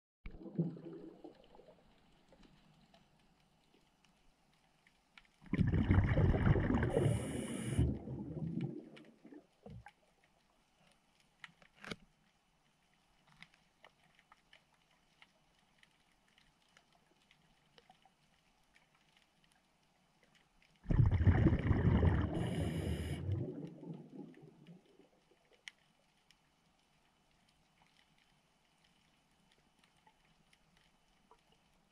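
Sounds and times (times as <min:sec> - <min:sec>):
rush of underwater bubbles: 0:00.3 - 0:01.9, 0:05.4 - 0:09.9, 0:20.8 - 0:25.3.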